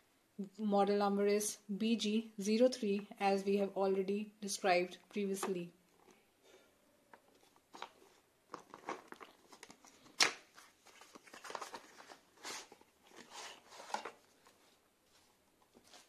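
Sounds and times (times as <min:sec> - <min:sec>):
cardboard crackle: 0:07.3 - 0:16.0.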